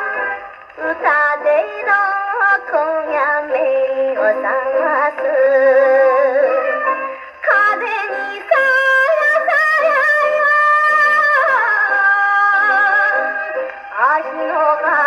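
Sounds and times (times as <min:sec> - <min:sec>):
old record of woman singing: 0:00.0 - 0:15.0.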